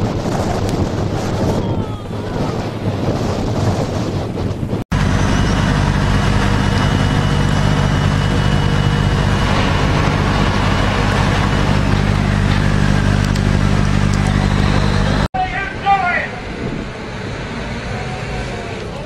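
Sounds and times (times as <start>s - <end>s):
wind noise: 0.0s - 15.3s
water noise: 2.6s - 15.3s
boat engine droning: 4.9s - 15.3s.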